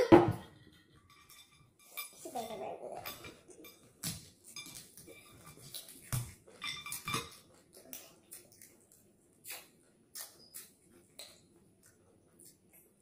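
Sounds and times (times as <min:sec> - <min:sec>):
chewing and crunching: 0:04.5 - 0:13.0
mouth smacking: 0:09.4 - 0:12.7.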